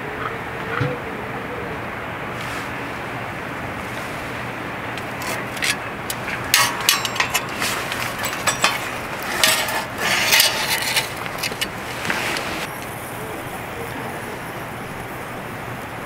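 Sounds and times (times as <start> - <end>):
steady background hiss: 0.0 - 16.0
metal tongs clinking on steel: 5.0 - 12.6.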